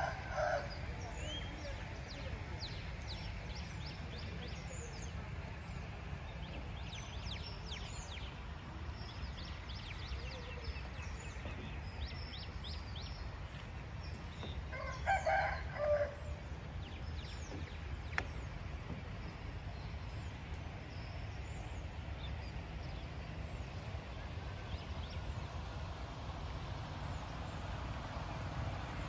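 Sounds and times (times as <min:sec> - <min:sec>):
low background noise: 0:00.0 - 0:29.0
small birds chirping: 0:00.0 - 0:29.0
rooster crowing: 0:14.7 - 0:16.2.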